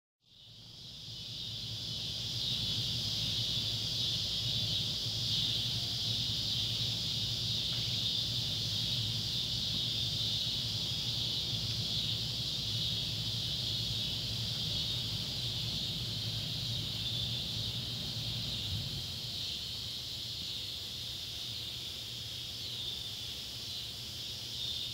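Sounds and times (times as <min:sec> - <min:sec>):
cicadas buzzing chorus: 0:00.2 - 0:24.9.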